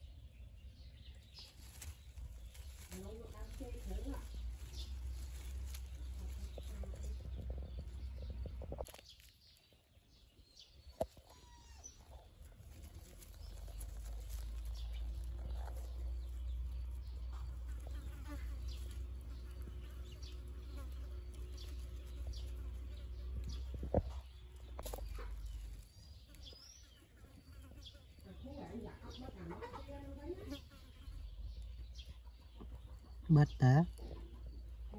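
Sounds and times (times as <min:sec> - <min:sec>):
low outdoor rumble: 0:00.0 - 0:08.9, 0:11.4 - 0:26.3.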